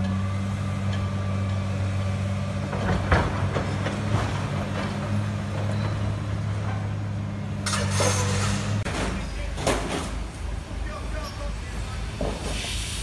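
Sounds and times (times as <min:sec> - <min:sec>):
sharp knocks and clanks: 0:02.6 - 0:06.9.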